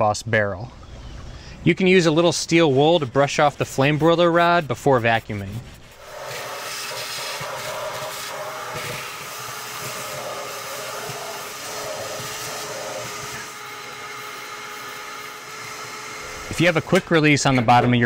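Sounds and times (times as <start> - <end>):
nozzle sucking ash and dust: 1.5 - 17.4
shop vacuum motor whine: 6.1 - 17.1.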